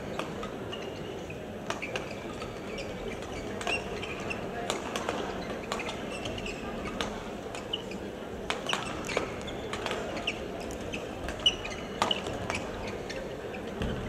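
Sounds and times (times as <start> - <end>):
shoe squeaks on court floor: 0.0 - 14.0
rackets striking shuttlecock: 8.5 - 12.7.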